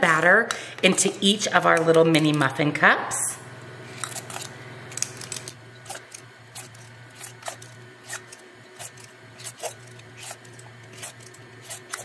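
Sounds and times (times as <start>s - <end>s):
steady low hum: 0.0s - 12.0s
metal scoop clicking: 4.0s - 12.0s.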